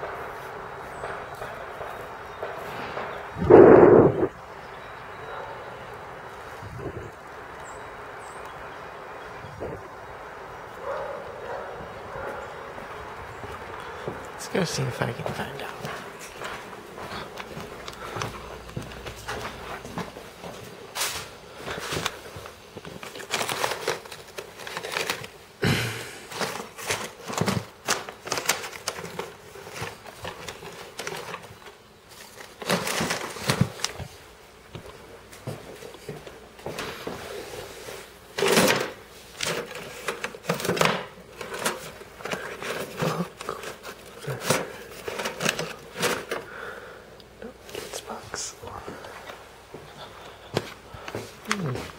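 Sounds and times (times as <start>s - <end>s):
rummaging knocks and rustles: 15.2s - 25.6s, 26.2s - 46.7s.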